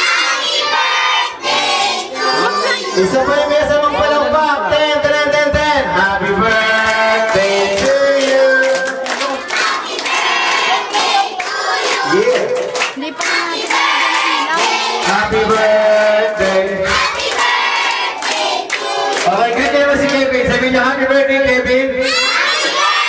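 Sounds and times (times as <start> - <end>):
children and adults singing: 0.0 - 4.3, 6.2 - 19.7, 22.1 - 23.0
hand clapping: 6.3 - 20.2.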